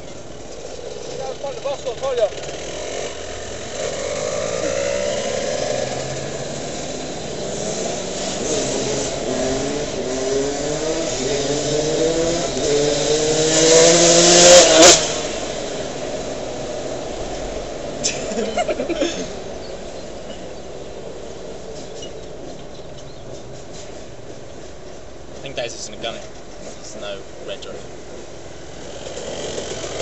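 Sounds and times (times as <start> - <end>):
engine accelerating through gears: 2.2 - 18.0.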